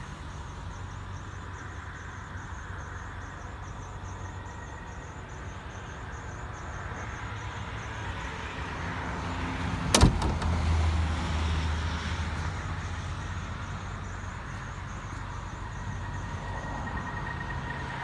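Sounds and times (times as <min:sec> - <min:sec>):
car hood slamming shut: 0:09.9 - 0:10.6.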